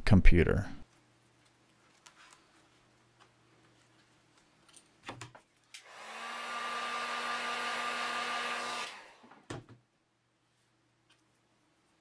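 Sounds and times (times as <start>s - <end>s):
heat gun blowing with whine: 5.8s - 9.3s.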